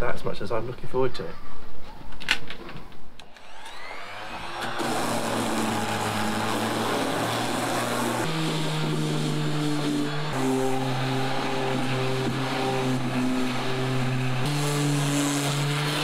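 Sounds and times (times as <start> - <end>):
electric sander buzzing on wood: 3.3 - 16.0.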